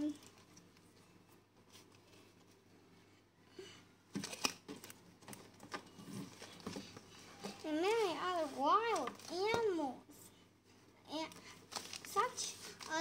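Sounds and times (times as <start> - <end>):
paper and plastic rustling: 4.1 - 9.8, 11.2 - 13.0.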